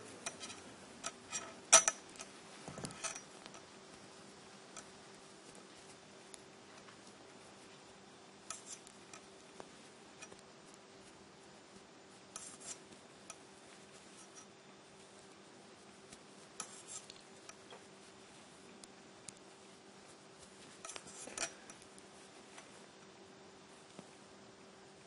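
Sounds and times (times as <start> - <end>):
metal knitting needles clicking: 0.2 - 2.3, 8.4 - 10.4, 12.4 - 13.4, 16.6 - 17.8.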